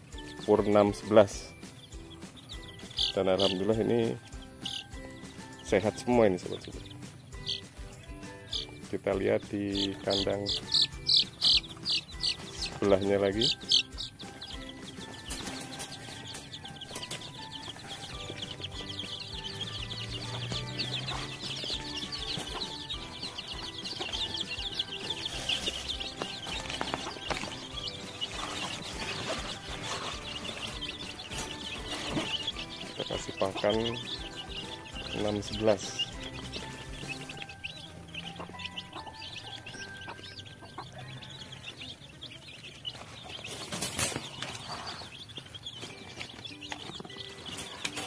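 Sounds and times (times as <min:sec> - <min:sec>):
chicks peeping: 0:00.0 - 0:48.0.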